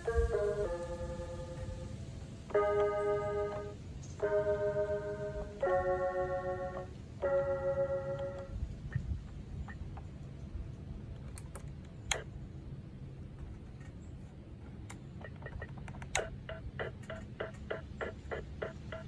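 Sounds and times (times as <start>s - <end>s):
toy keyboard clicks: 14.9s - 19.0s.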